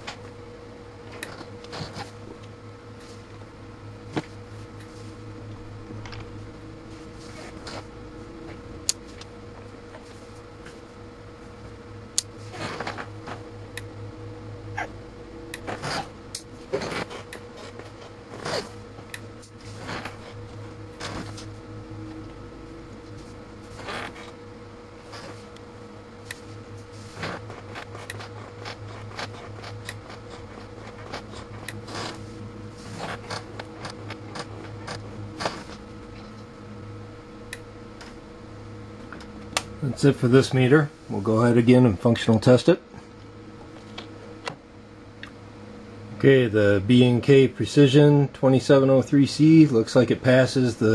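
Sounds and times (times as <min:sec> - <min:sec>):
steady electrical hum: 0:00.0 - 0:50.9
sharp electrical clicks and snaps: 0:12.1 - 0:13.9, 0:15.5 - 0:21.6, 0:27.2 - 0:32.2, 0:33.0 - 0:36.5.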